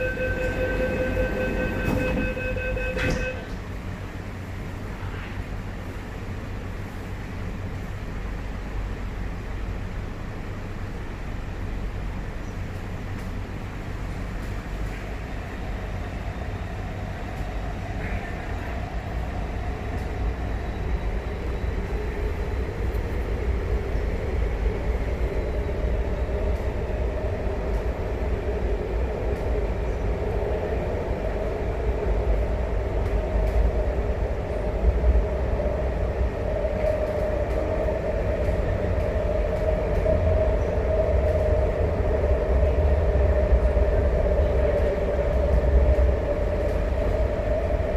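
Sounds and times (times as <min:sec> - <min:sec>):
train wheels rumbling on rails: 0:00.0 - 0:47.9.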